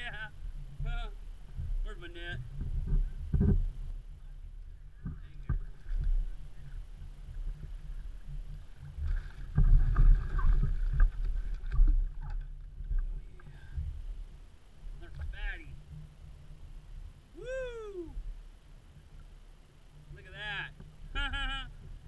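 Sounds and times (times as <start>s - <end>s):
water splashing against kayak: 0.0s - 17.3s
wind rumble on microphone: 0.0s - 22.0s.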